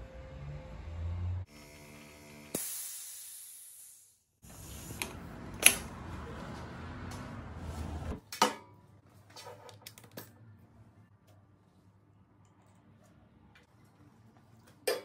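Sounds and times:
air hissing: 0:02.5 - 0:05.8.

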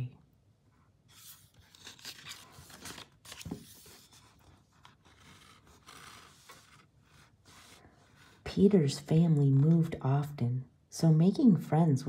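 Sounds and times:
book page rustling: 0:01.0 - 0:08.4
page scraping: 0:01.1 - 0:08.4.

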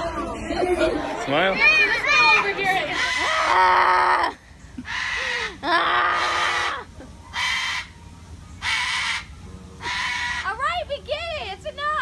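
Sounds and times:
cockatoo screeching: 0:02.8 - 0:08.0, 0:08.6 - 0:10.6.

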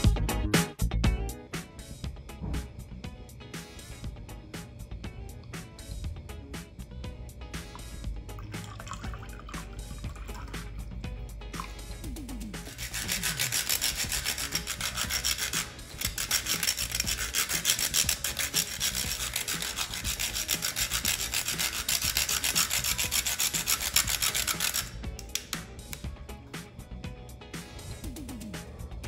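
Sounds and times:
spice scraping on metal grater: 0:12.6 - 0:25.0.

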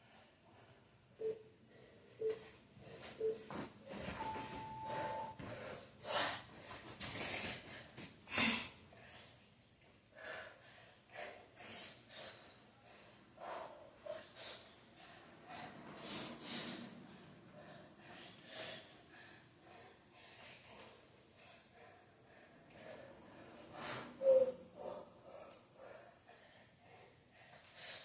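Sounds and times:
electronic beep: 0:01.2 - 0:01.4, 0:04.2 - 0:05.4
person breathing hard: 0:01.7 - 0:09.5, 0:10.1 - 0:28.0.

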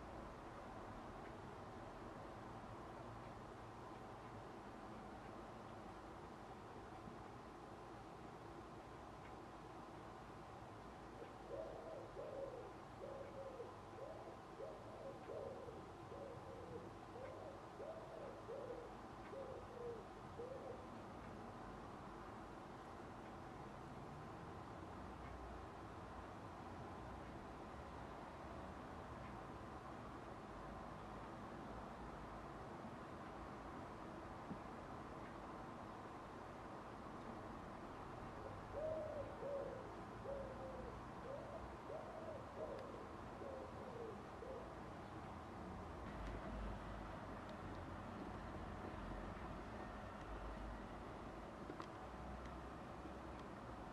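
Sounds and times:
pigeon cooing: 0:11.2 - 0:20.9, 0:38.4 - 0:44.8.

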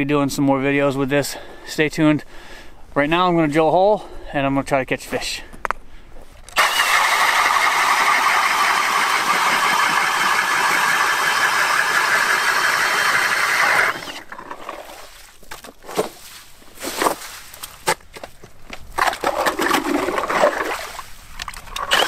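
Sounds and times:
power ice auger boring: 0:06.5 - 0:14.9, 0:21.8 - 0:22.0.

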